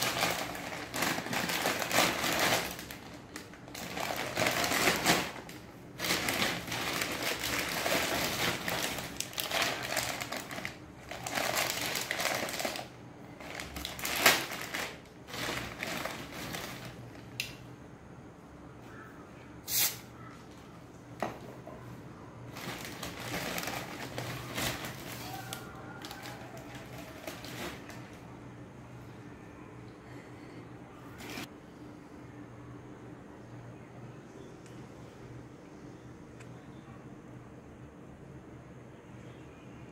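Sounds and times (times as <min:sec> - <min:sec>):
plastic bag rustling and crinkling: 0:00.0 - 0:17.4, 0:22.4 - 0:28.2, 0:31.2 - 0:31.5.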